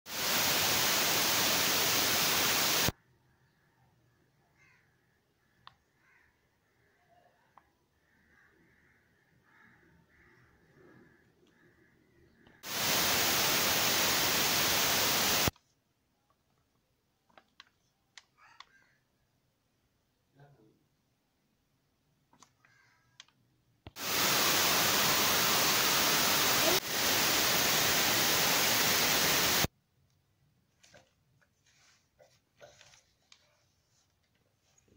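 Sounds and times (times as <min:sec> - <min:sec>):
loud steady hiss: 0:00.1 - 0:02.9, 0:12.6 - 0:15.5, 0:23.9 - 0:29.7
faint click: 0:22.3 - 0:24.0.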